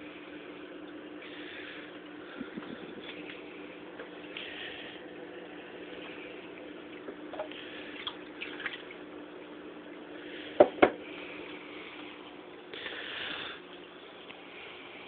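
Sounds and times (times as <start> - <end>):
aquarium aeration hum and bubbling: 0.0 - 15.0
water splashing and trickling: 5.6 - 9.1.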